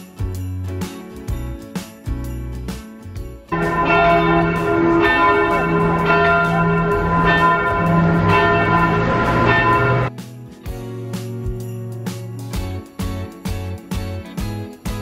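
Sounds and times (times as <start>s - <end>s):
church bells ringing: 3.5s - 10.1s.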